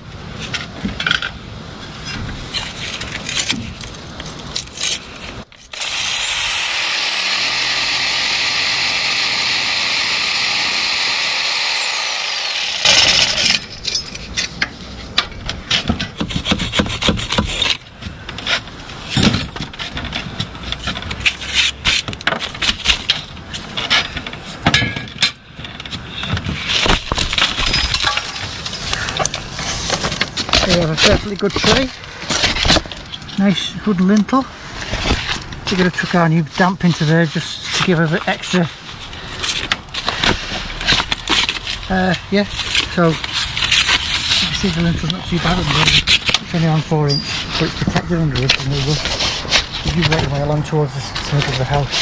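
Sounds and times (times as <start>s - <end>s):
power tool cutting brick: 5.7s - 13.6s
knocks and scrapes of brick: 12.8s - 33.4s, 34.8s - 52.0s.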